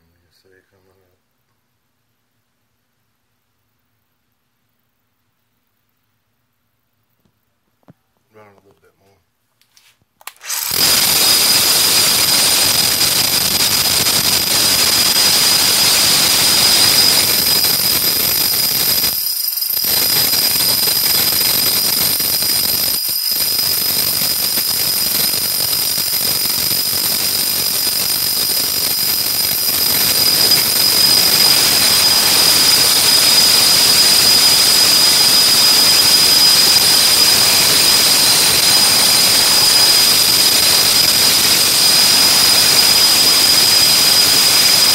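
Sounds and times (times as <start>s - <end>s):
rotary hammer motor whirring: 10.3s - 44.9s.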